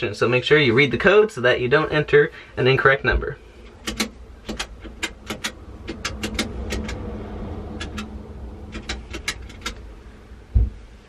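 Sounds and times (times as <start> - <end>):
steady low rumble: 0.0 - 11.0
payphone keypad buttons clicking: 3.8 - 7.0.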